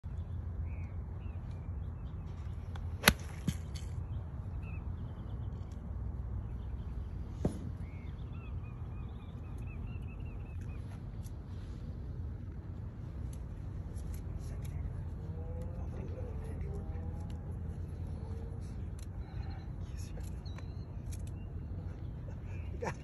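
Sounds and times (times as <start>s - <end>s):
birds chirping: 0.0s - 23.0s
golf club striking ball: 3.0s - 3.9s.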